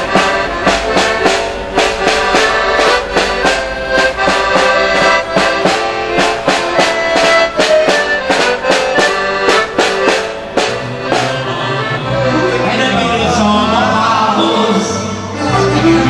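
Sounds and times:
snare drum beating: 0:00.0 - 0:12.0
accordion playing lively tune: 0:00.0 - 0:16.0.

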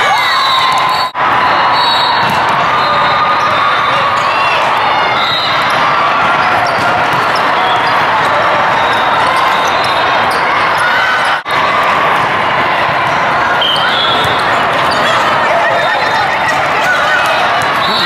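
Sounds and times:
overlapping voices in hall: 0:00.0 - 0:18.0
volleyballs hit and bouncing: 0:02.2 - 0:02.8, 0:05.6 - 0:18.0.

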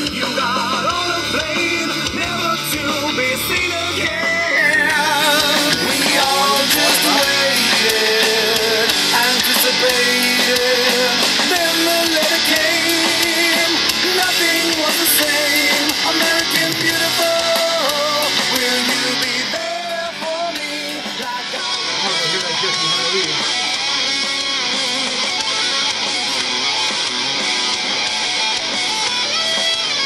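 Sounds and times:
person singing: 0:00.0 - 0:22.8
guitar: 0:00.0 - 0:30.0.

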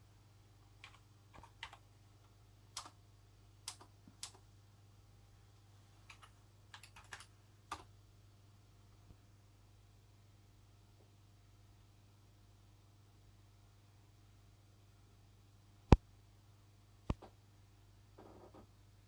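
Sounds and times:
faint low hum: 0:00.0 - 0:19.0
keyboard keystrokes: 0:03.7 - 0:04.4, 0:06.1 - 0:07.9.

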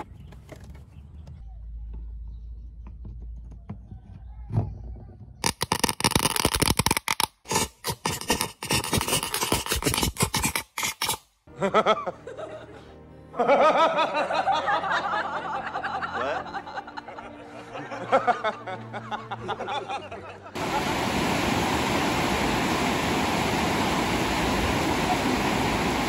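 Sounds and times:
electrical sparks crackling: 0:05.4 - 0:11.2.

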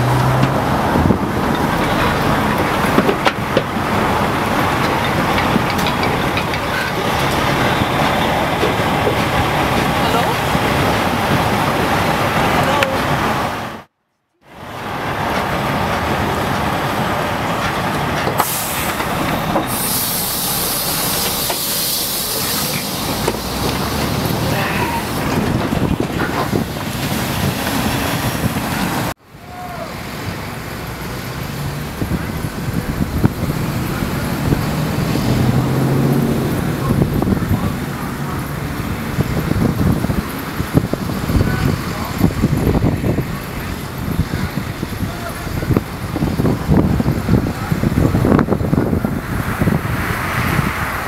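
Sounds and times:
truck engine and road noise: 0:00.0 - 0:51.0
sharp air hiss: 0:18.4 - 0:23.1
vehicle engine low hum: 0:30.0 - 0:51.0.

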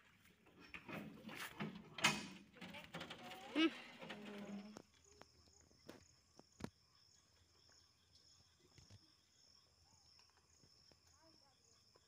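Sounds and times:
insects chirping: 0:02.4 - 0:12.0.

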